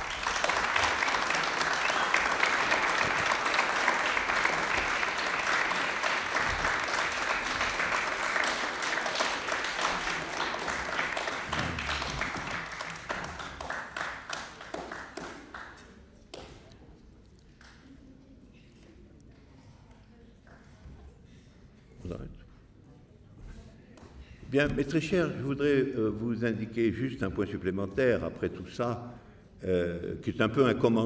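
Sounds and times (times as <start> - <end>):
audience applauding: 0.0 - 15.9.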